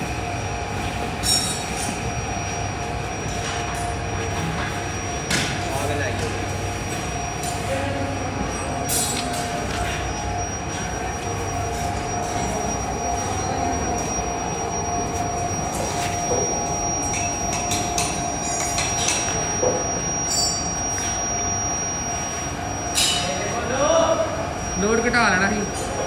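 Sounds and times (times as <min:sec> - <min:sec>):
furnace whine and hum: 0:00.0 - 0:26.0.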